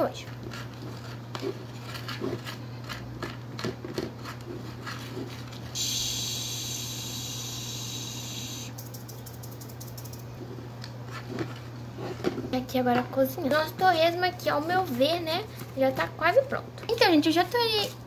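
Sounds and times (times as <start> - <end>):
sizzling hiss of frying: 5.8 - 8.7.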